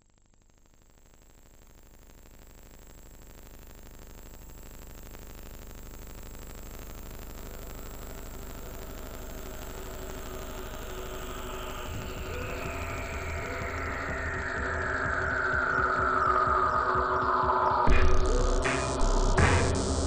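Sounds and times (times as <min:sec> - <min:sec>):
thin high whine: 0:06.1 - 0:20.0
buzzing droning soundtrack: 0:07.2 - 0:20.0.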